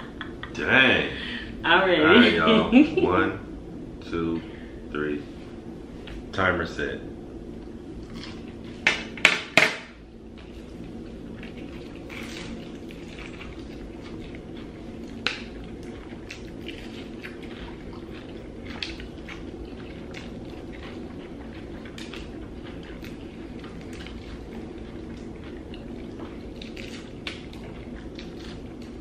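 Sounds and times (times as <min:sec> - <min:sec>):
steady low hum: 0:00.0 - 0:29.0
people chewing and smacking: 0:07.6 - 0:09.1, 0:10.2 - 0:29.0.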